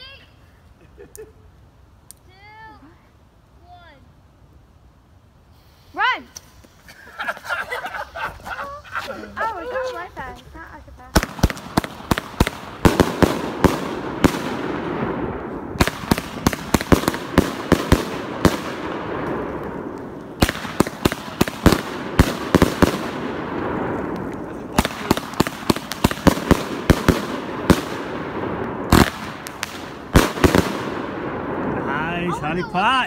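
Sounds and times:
firework rushing noise: 0:10.0 - 0:33.0
firework bangs: 0:11.1 - 0:32.7.

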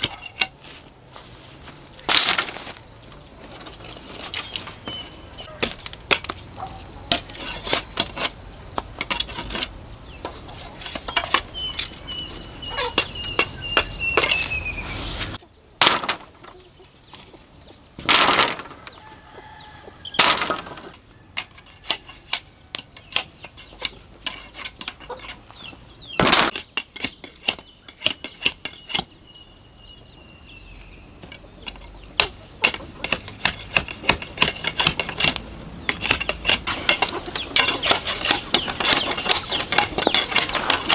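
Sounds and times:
machete scraping bamboo: 0:00.0 - 0:17.4, 0:19.6 - 0:29.2, 0:31.2 - 0:40.9.

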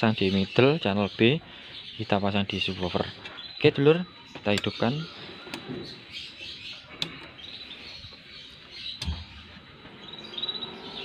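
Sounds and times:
small birds chirping: 0:00.0 - 0:11.0
amplifier power switch clicks: 0:09.0 - 0:09.3.

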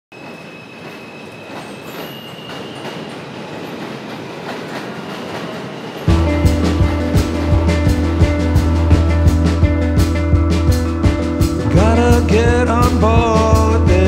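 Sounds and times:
high wheel squeal: 0:00.1 - 0:03.8
subway train rumble and rail clatter: 0:00.1 - 0:14.0
band music with drums and bass: 0:06.1 - 0:14.0.

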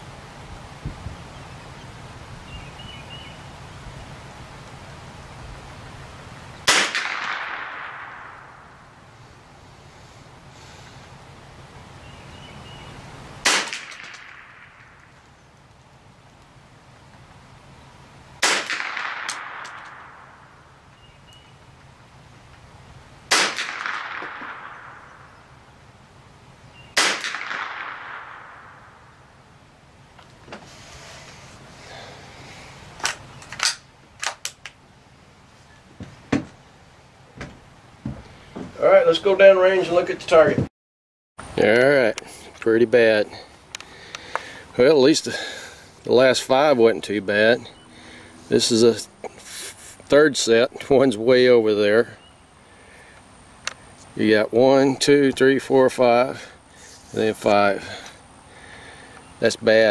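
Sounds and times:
rifle shot echoing: 0:06.6 - 0:09.1, 0:13.4 - 0:15.2, 0:18.4 - 0:20.8, 0:23.3 - 0:25.8, 0:26.9 - 0:29.4
faint clicks: 0:43.7 - 0:44.5.

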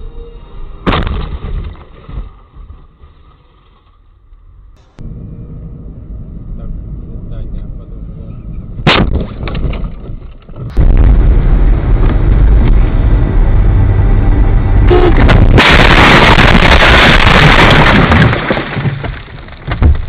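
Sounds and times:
car road and engine noise: 0:04.1 - 0:16.3
car collision crash: 0:15.2 - 0:20.0.

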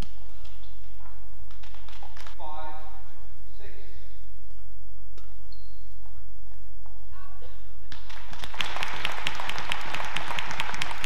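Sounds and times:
crowd applause: 0:08.1 - 0:11.0.

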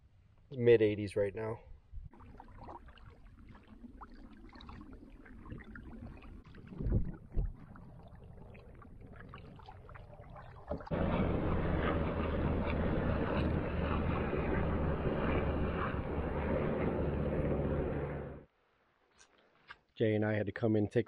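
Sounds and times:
faint water sounds: 0:00.6 - 0:18.0
rushing noise with low hum: 0:10.9 - 0:18.4.

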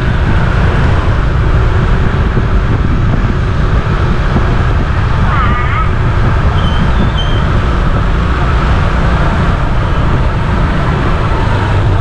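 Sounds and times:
tyres on wet road: 0:00.0 - 0:12.0.

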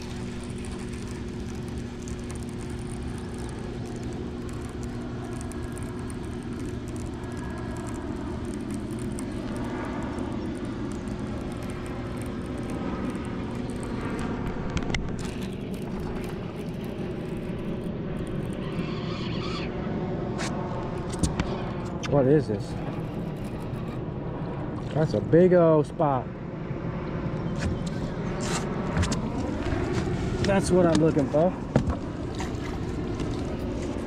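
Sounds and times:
sharp clicks: 0:00.0 - 0:18.8
low rumble with hum: 0:00.0 - 0:34.0.

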